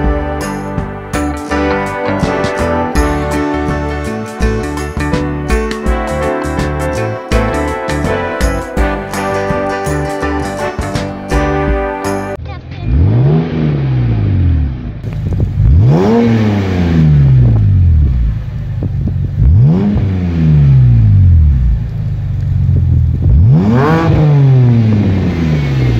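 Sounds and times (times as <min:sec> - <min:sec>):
car engine revving: 0:00.0 - 0:25.9.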